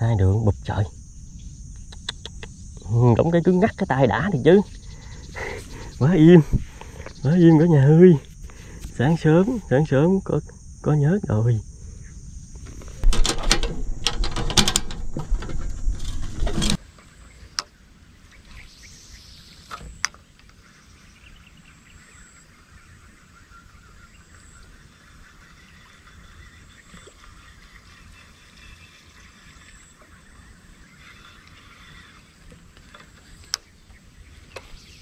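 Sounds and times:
faint insect or bird chirping: 0:00.0 - 0:35.0
sharp clicks: 0:01.7 - 0:02.6
loud rustling and knocking: 0:12.6 - 0:16.8.

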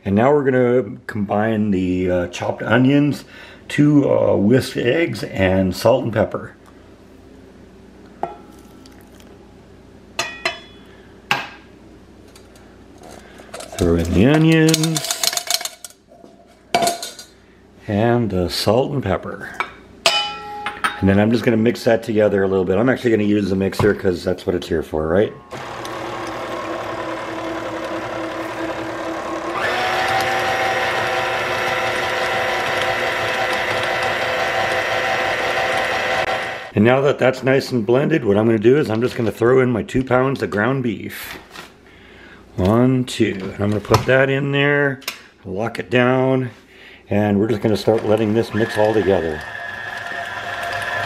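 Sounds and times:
kitchenware clinking: 0:10.2 - 0:11.6, 0:13.5 - 0:16.0, 0:16.7 - 0:17.3, 0:19.6 - 0:21.1
stand mixer motor whine: 0:25.5 - 0:36.7, 0:47.9 - 0:51.0.

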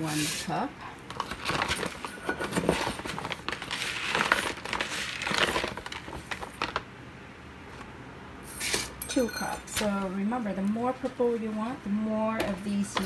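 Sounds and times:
plastic packet crinkling: 0:01.2 - 0:06.9.

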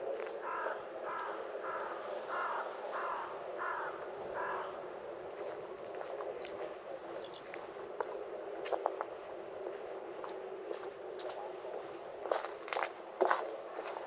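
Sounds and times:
crow cawing: 0:00.4 - 0:04.9.

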